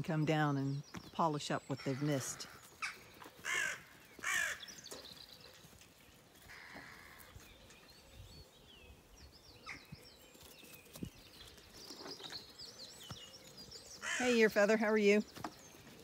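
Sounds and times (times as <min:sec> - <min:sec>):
small birds chirping: 0:00.0 - 0:16.0
crow cawing: 0:02.4 - 0:04.7, 0:06.5 - 0:07.3, 0:14.0 - 0:14.2.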